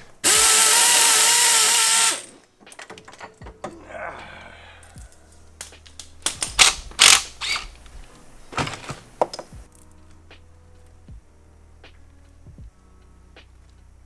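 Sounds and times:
metal parts clanking on workbench: 0:02.6 - 0:03.8.

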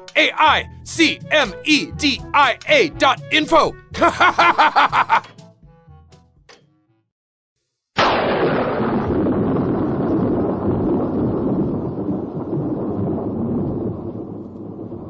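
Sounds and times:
thunder crack and rumble: 0:08.0 - 0:15.0.

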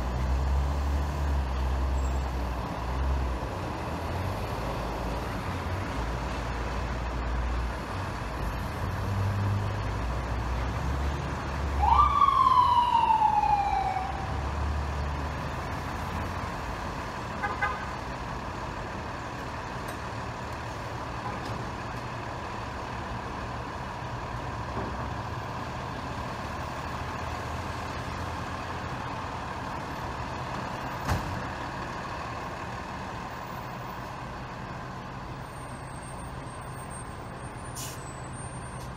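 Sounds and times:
truck engines running: 0:00.0 - 0:38.9
ambulance siren whoop: 0:11.8 - 0:14.4.

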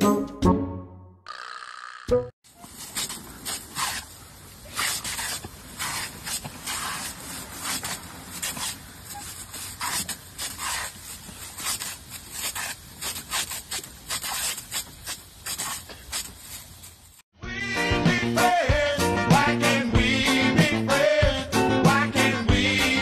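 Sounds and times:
water jet hissing and splattering: 0:02.7 - 0:17.1.

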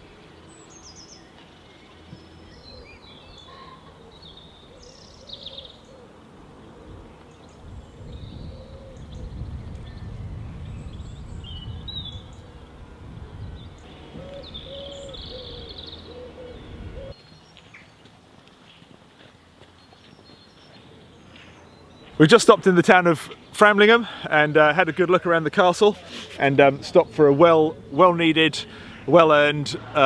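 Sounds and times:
small birds chirping: 0:00.0 - 0:29.2
low rumbling noise: 0:06.8 - 0:17.2.

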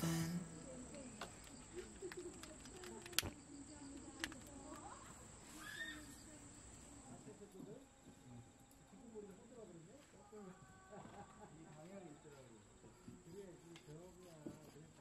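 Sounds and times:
crickets droning: 0:00.0 - 0:10.1.

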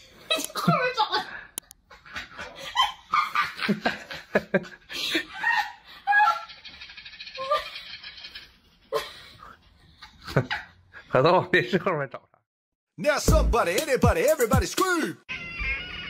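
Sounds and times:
people laughing: 0:02.0 - 0:06.3
speech: 0:11.1 - 0:12.3, 0:14.0 - 0:15.2.

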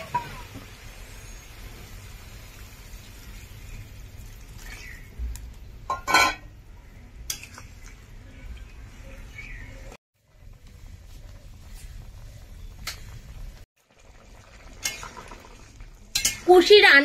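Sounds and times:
spoon stirring in pot: 0:07.2 - 0:08.8.

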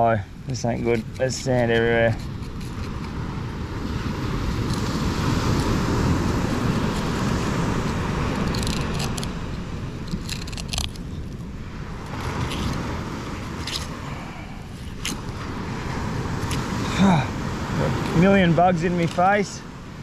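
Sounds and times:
low rumbling noise: 0:05.0 - 0:18.5
crunching clicks: 0:10.1 - 0:11.1.

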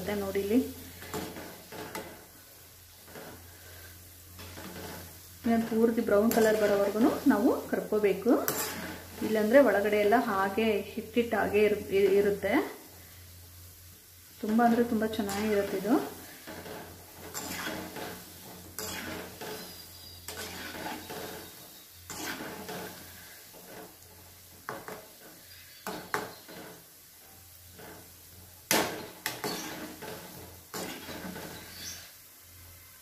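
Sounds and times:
oil sizzling: 0:00.0 - 0:33.0
metal skimmer scraping steel pan: 0:16.5 - 0:23.9.

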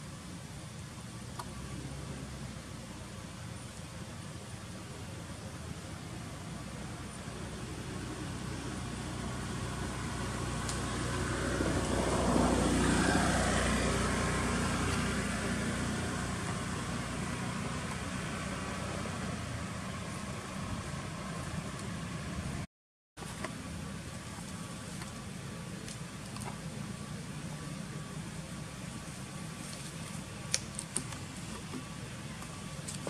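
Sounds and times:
motor vehicle passing by: 0:07.3 - 0:22.7.

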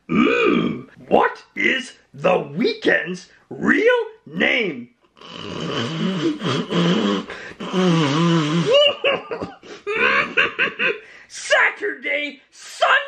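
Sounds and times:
croaky voice laughing: 0:08.5 - 0:11.0.

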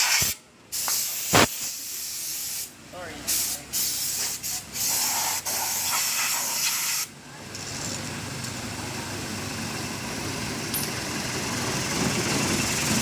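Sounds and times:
pressurised spray hissing: 0:00.0 - 0:07.1
vehicle engine running: 0:07.2 - 0:13.0.

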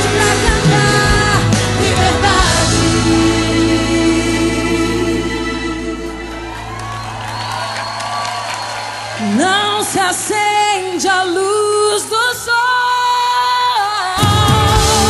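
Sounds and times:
drums and bass: 0:00.0 - 0:06.1, 0:14.2 - 0:15.0
high sung melody: 0:00.0 - 0:07.3
gospel pop band music: 0:00.0 - 0:15.0.

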